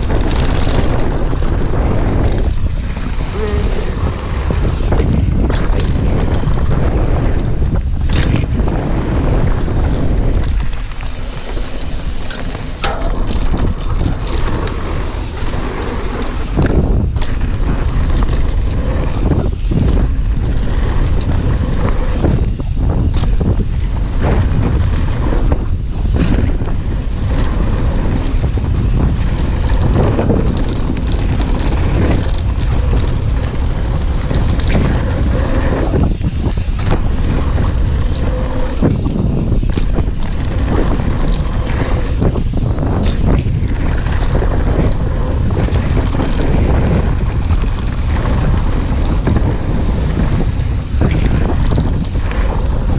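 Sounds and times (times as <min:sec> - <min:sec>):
bike knocking and rattling: 0:00.0 - 0:52.9
tyres rumbling on dirt: 0:00.0 - 0:52.9
wind buffeting microphone: 0:00.0 - 0:52.9.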